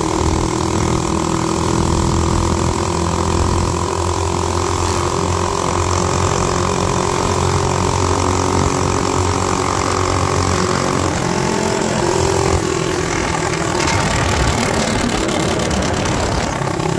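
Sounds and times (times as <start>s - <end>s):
minibike engine running: 0.0s - 16.9s
wind noise on microphone: 11.0s - 16.9s.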